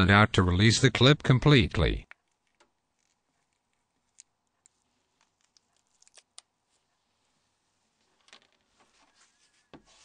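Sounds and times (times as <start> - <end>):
light rustling of handling: 2.1 - 10.0.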